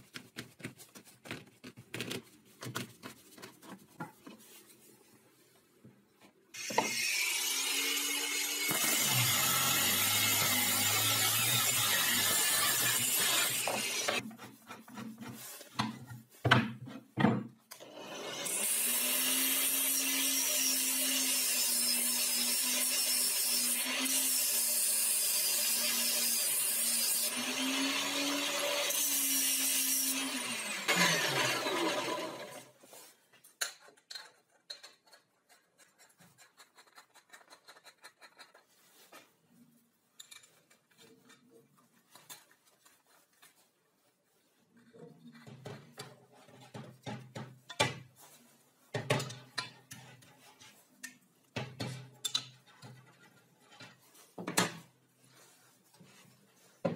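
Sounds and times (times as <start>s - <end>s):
angle grinder cutting steel: 6.6s - 14.2s, 17.8s - 32.7s
power tool cutting: 6.6s - 14.2s, 17.8s - 32.7s.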